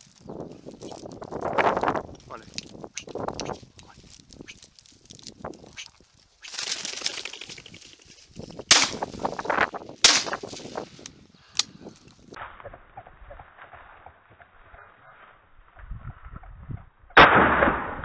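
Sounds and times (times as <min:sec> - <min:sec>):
rustling through brambles: 0:00.0 - 0:12.4
shotgun shots with echo: 0:08.7 - 0:09.1, 0:10.0 - 0:10.6, 0:17.2 - 0:18.0.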